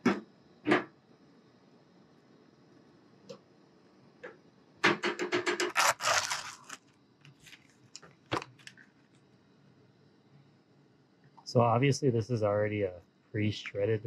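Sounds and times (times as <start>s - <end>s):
thin plastic crinkling: 5.7s - 8.9s.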